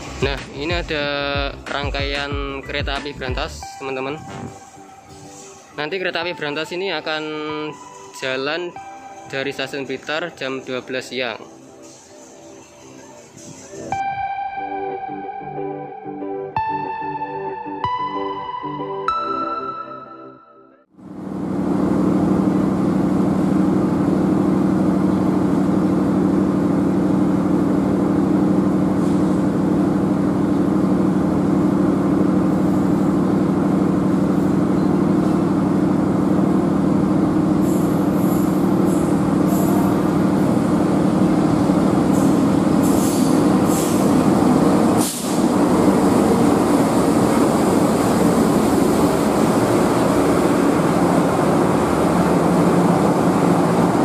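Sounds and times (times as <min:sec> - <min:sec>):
high-pitched train squeaks: 0:11.4 - 0:14.0, 0:37.5 - 0:41.0, 0:41.7 - 0:45.5
diesel locomotive engine humming: 0:21.0 - 0:54.0
locomotive rumbling past: 0:21.0 - 0:54.0.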